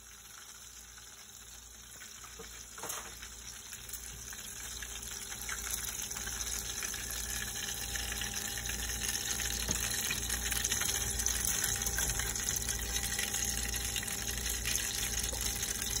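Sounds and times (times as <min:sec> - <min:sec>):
chicken deep-frying in oil: 0:00.0 - 0:16.0.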